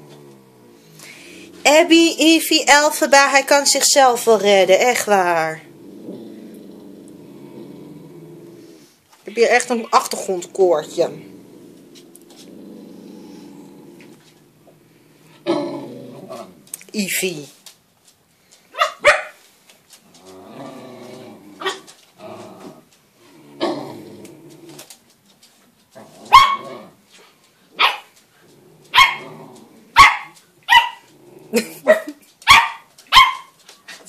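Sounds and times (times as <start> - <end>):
dog growling: 0.0 - 2.2, 4.8 - 17.0, 20.0 - 25.0, 25.9 - 27.0, 28.3 - 32.3
dog barking: 18.7 - 19.4, 26.3 - 26.7, 27.8 - 28.1, 28.9 - 29.2, 30.0 - 31.0, 31.9 - 33.5.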